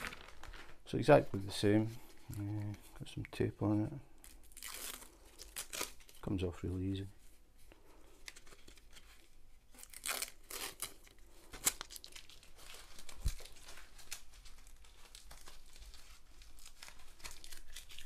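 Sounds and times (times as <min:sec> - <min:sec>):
plastic sleeve crinkling: 0:00.0 - 0:03.5, 0:04.1 - 0:07.2, 0:08.0 - 0:18.0
tape being peeled off plastic: 0:04.2 - 0:06.2, 0:08.1 - 0:18.0.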